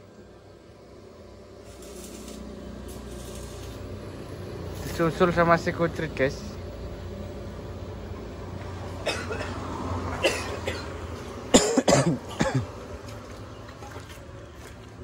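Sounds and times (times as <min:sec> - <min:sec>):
person coughing: 0:09.0 - 0:09.6, 0:10.2 - 0:10.9, 0:11.5 - 0:12.7.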